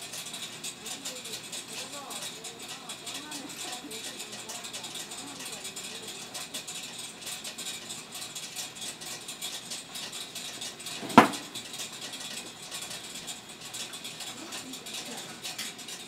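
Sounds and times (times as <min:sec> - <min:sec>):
rice-popping machine crackling hiss: 0:00.0 - 0:16.0
sharp knock: 0:11.0 - 0:11.6.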